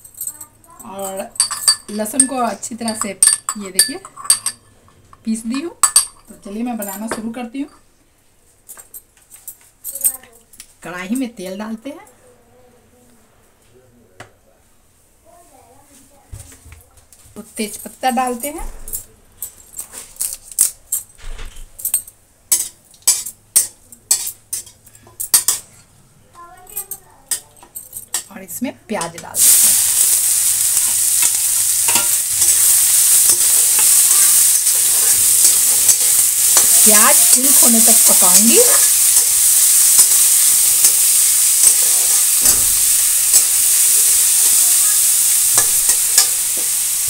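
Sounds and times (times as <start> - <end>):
oil sizzling: 29.0 - 47.0
metal spatula scraping pan: 29.4 - 46.8.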